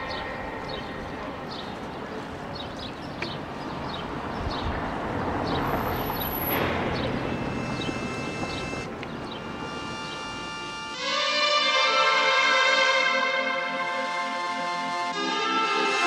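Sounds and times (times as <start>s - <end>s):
distant traffic noise: 0.0s - 11.1s.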